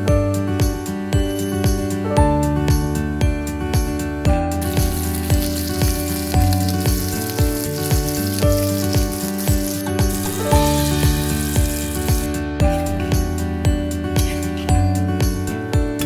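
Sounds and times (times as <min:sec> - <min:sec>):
background music with steady beat: 0:00.0 - 0:16.0
fish sizzling in hot oil: 0:04.6 - 0:13.0.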